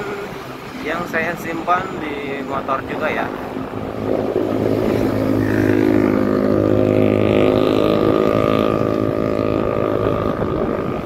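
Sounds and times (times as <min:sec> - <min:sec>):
road and wind noise: 0:00.0 - 0:11.0
motorcycle engine cruising: 0:02.7 - 0:11.0.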